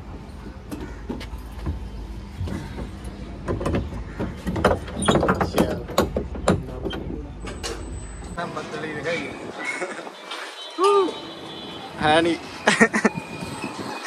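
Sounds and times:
metal clanks and rattles: 2.4 - 7.9.

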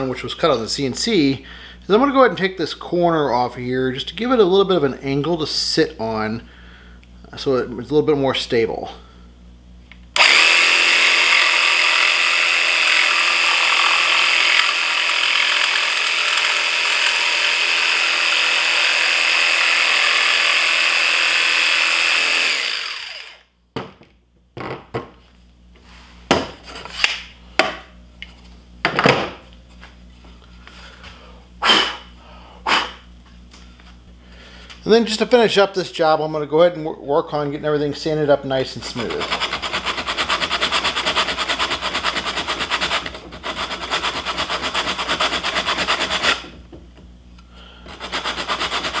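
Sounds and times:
jigsaw cutting wood: 10.2 - 23.5, 39.1 - 46.5, 47.9 - 49.0.

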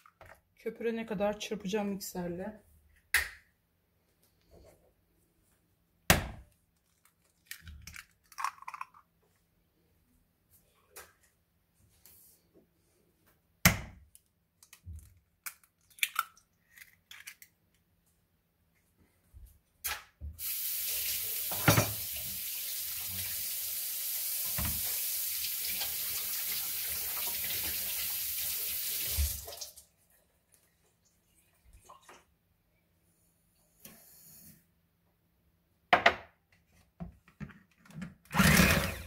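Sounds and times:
egg cracked into plastic bowl: 7.4 - 9.0, 15.4 - 16.4
tap running water: 20.3 - 29.8.

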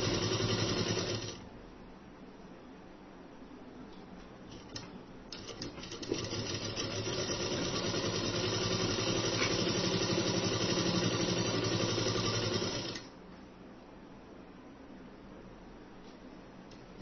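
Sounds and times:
sewing machine stitching: 0.0 - 1.4, 4.5 - 13.1.

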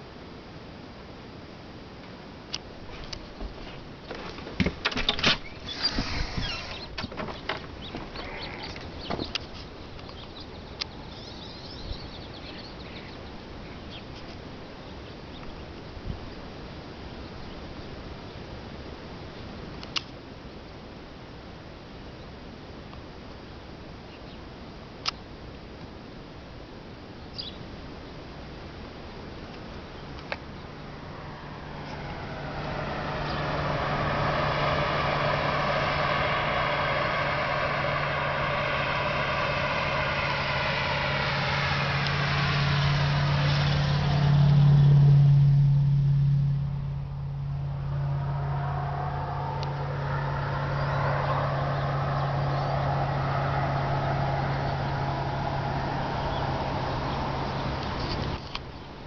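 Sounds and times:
engine passing by: 5.4 - 7.0, 7.6 - 9.8, 30.2 - 58.7.

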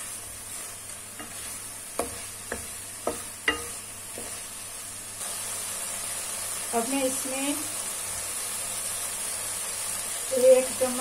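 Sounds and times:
food sizzling in pan: 0.0 - 11.0
spatula knocking and scraping pan: 1.1 - 4.5.

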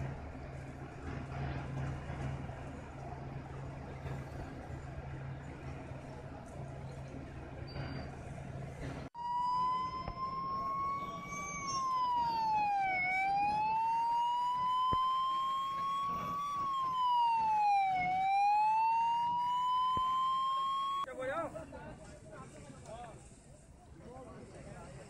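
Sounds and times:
fire engine siren wailing: 9.2 - 21.1.

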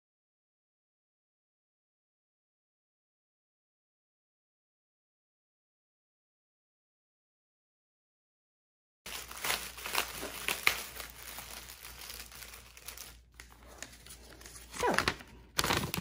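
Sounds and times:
plastic packaging crinkling: 9.1 - 16.0.

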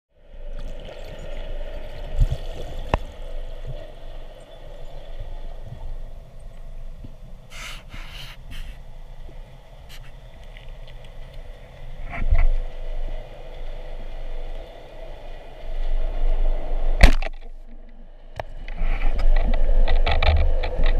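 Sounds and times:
constant hum: 0.2 - 20.9
muffled underwater rumble: 0.2 - 20.9
short hissing sweeps: 7.5 - 8.8.

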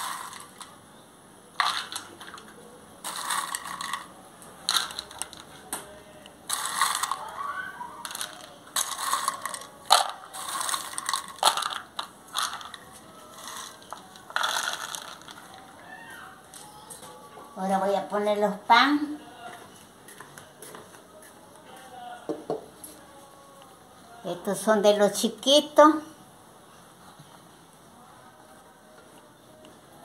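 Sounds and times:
peanuts rattling and clattering: 0.0 - 0.8, 1.6 - 5.7, 6.5 - 15.8.

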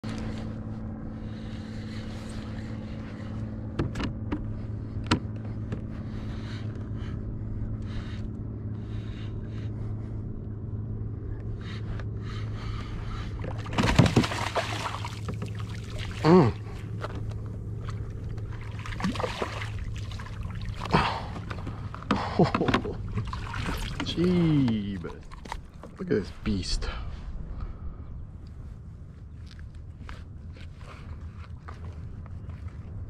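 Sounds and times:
fish splashing at surface: 13.7 - 16.3, 18.7 - 20.9.

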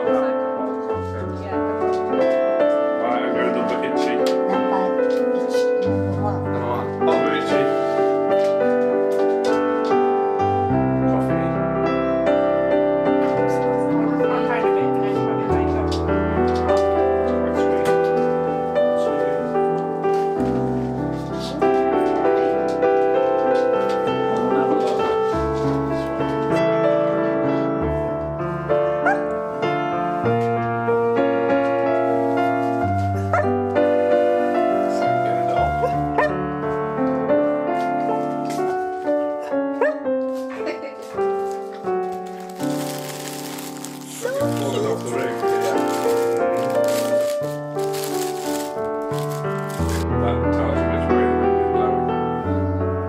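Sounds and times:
piano chords: 0.0 - 53.0
dog whining: 29.0 - 29.2, 35.8 - 36.3, 39.8 - 40.0.

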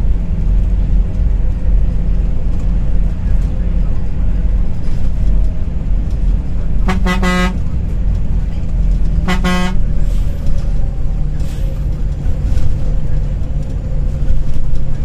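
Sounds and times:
low rumble of a moving coach: 0.0 - 15.0
vehicle horn blasts: 6.8 - 7.7, 9.2 - 10.0.

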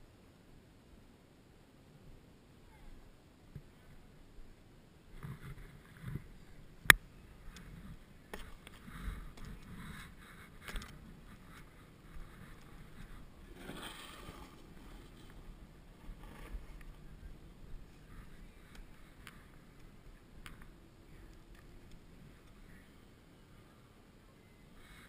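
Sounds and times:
snowboard scraping on snow: 12.3 - 15.4.

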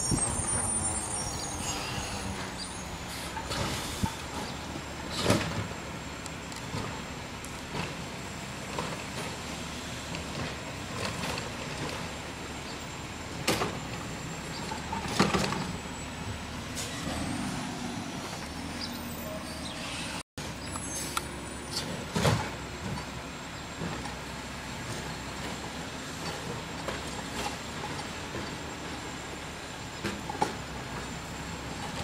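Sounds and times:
garbage truck engine running: 0.0 - 19.8.

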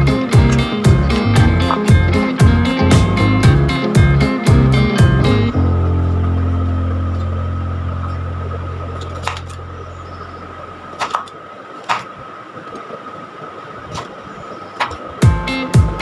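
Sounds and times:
deep held note: 0.0 - 10.6
plucked guitar music: 0.0 - 10.7, 15.2 - 16.0.

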